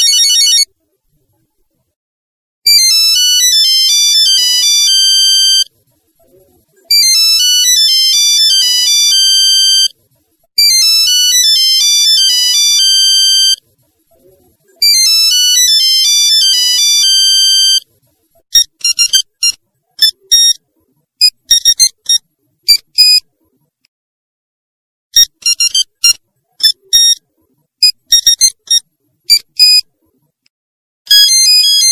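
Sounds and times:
electronic phone ringtone melody: 0:00.0 - 0:00.7, 0:02.7 - 0:05.7, 0:06.9 - 0:09.9, 0:10.6 - 0:13.6, 0:14.8 - 0:17.8, 0:25.2 - 0:27.2, 0:31.1 - 0:31.9.

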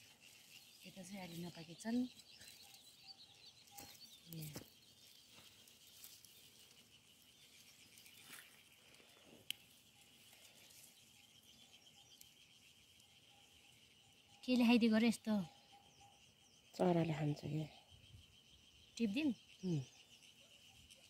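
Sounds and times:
insects chirring: 0:00.0 - 0:21.0
plants rustling: 0:03.6 - 0:06.9.

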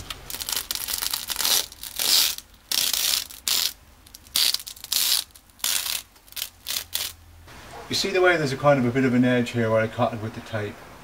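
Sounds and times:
masking tape ripping off: 0:00.0 - 0:07.2.

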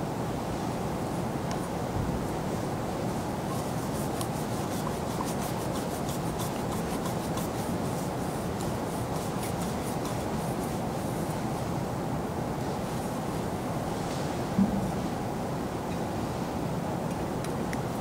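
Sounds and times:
scratchy rubbing strokes: 0:03.2 - 0:11.2.

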